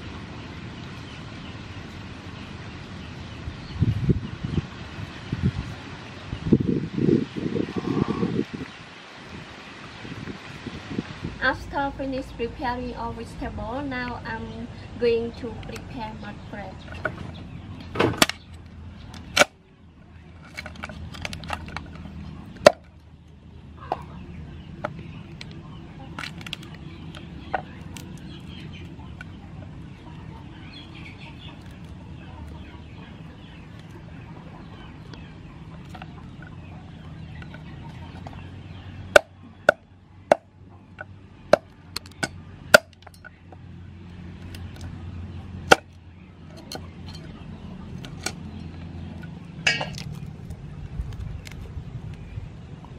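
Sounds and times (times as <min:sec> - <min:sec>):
chickens clucking: 0:07.6 - 0:08.7, 0:13.0 - 0:52.9
crab shell cracking: 0:25.3 - 0:28.6.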